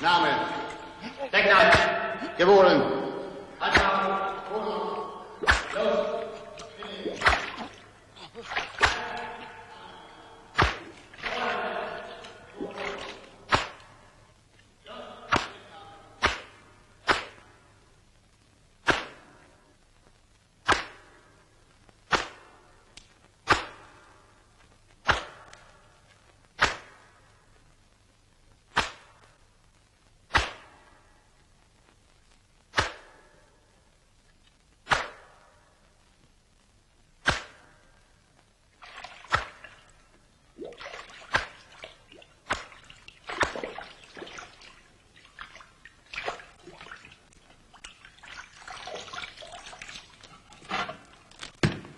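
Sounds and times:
water splashing and sloshing: 0:00.0 - 0:14.7, 0:38.7 - 0:51.9
sharp cracks: 0:00.0 - 0:48.0.

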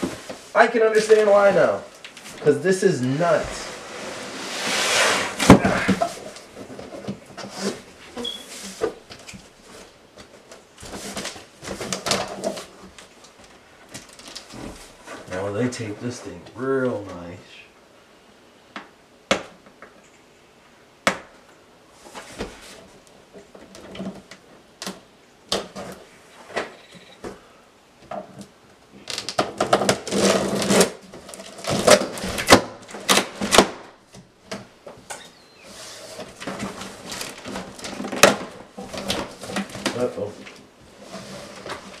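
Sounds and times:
cardboard scraping and tearing: 0:00.0 - 0:09.0, 0:29.1 - 0:33.8, 0:35.6 - 0:42.0
tape ripping: 0:29.0 - 0:33.9.

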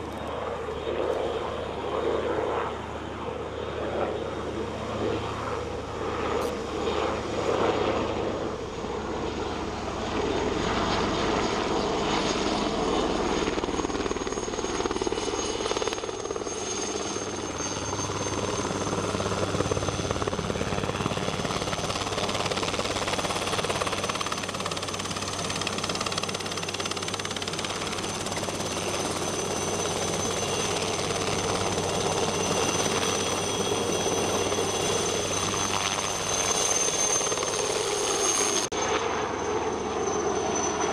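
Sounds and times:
helicopter engine and rotor: 0:00.0 - 0:40.9
thin high whine: 0:27.0 - 0:40.9.

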